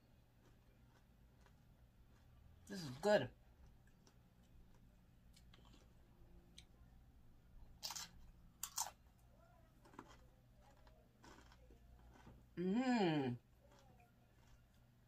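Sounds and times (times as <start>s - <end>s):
chewing crunchy chip: 0.4s - 2.6s, 7.8s - 9.0s, 9.8s - 12.4s, 13.5s - 15.0s.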